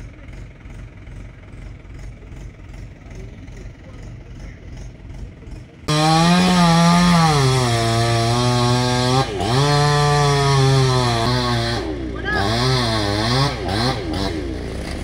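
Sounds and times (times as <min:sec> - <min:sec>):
chainsaw engine revving: 0:04.9 - 0:15.0.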